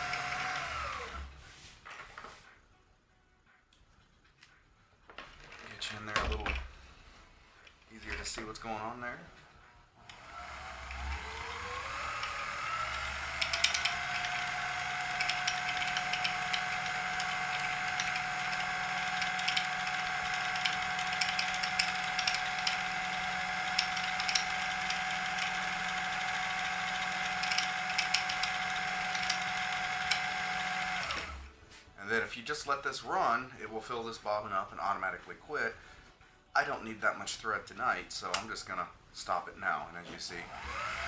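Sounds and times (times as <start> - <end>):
sewing machine motor whine: 0.0 - 1.3, 10.0 - 31.5, 40.4 - 41.0.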